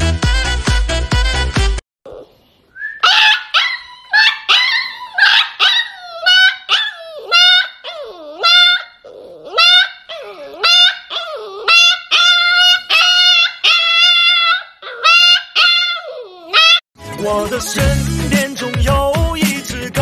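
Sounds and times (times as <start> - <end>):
music: 0.0 - 1.8, 17.0 - 20.0
puppy howling: 2.9 - 16.8.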